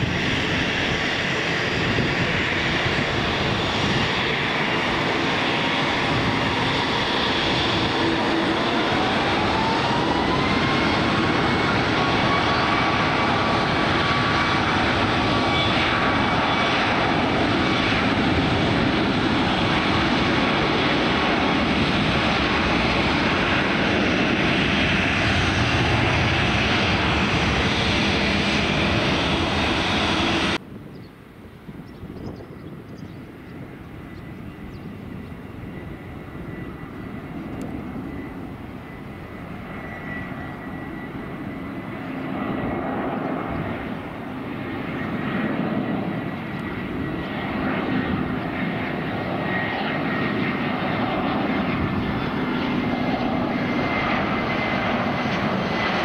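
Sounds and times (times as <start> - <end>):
rising engine whine: 0.0 - 30.6
aircraft engines running: 0.0 - 56.0.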